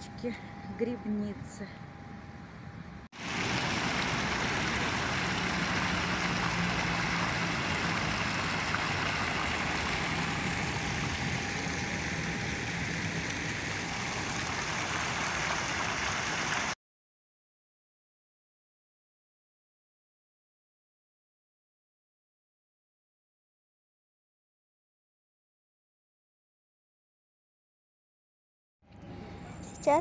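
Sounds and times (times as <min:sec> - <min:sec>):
fountain water splashing: 0:03.2 - 0:16.8.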